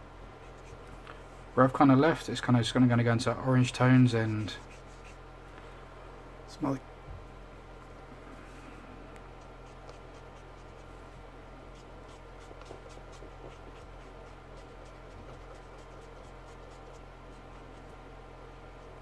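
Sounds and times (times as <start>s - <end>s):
marker scratching on paper: 0.4s - 0.9s, 4.2s - 5.2s, 9.4s - 10.9s, 11.7s - 17.9s.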